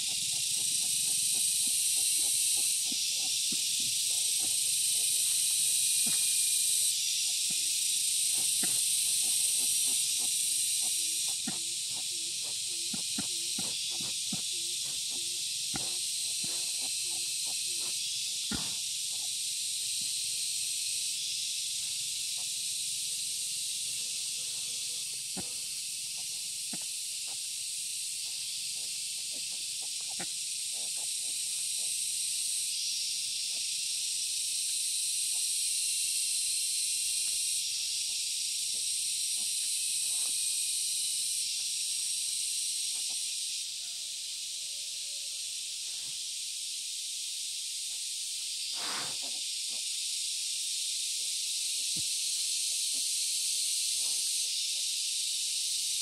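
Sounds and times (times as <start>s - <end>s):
pigs rooting in dry leaves: 0.0s - 20.2s, 25.0s - 32.4s
high-pitched insect chorus: 0.0s - 56.0s.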